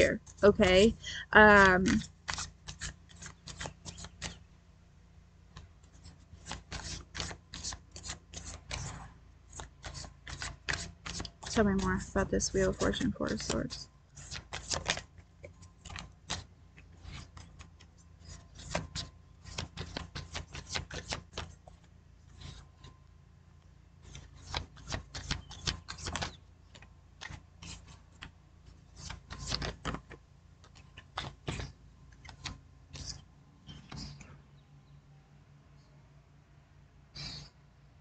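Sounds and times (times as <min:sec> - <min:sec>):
cards being shuffled: 0:01.5 - 0:04.4, 0:05.5 - 0:23.0, 0:24.0 - 0:33.2.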